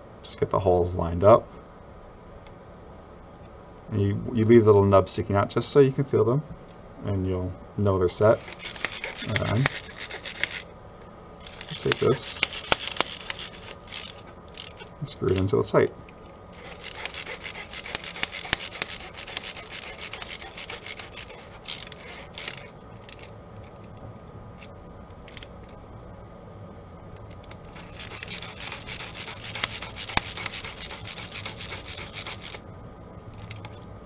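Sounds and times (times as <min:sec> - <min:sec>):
screw scraping into plastic: 0:08.4 - 0:10.6, 0:11.4 - 0:15.6, 0:16.6 - 0:24.0, 0:27.2 - 0:32.6.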